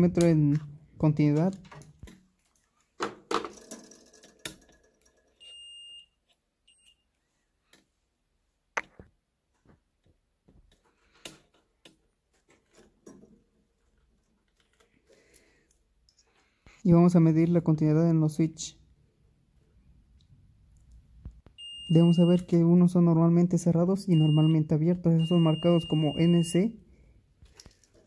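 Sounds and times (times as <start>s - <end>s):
multimeter beep: 5.4s - 7.1s, 21.6s - 22.7s, 24.1s - 26.8s.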